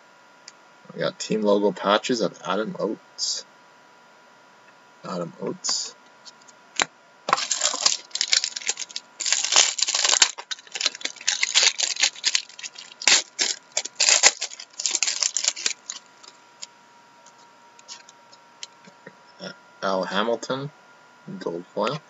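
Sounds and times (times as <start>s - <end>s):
foil wrapper crinkling and tearing: 6.8s - 16.7s, 17.8s - 18.1s.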